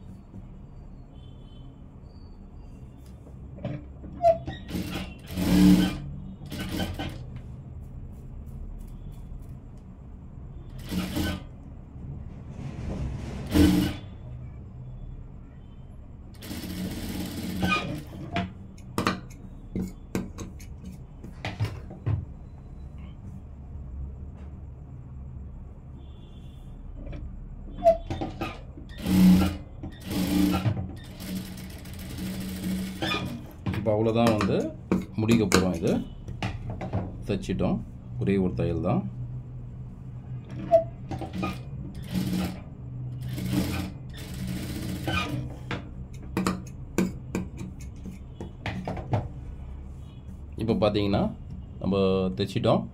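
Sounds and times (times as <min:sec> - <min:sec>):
industrial sewing machine stitching: 0:04.3 - 0:07.3, 0:10.7 - 0:11.6, 0:13.4 - 0:14.1, 0:16.4 - 0:18.4, 0:28.2 - 0:33.6, 0:41.2 - 0:45.5.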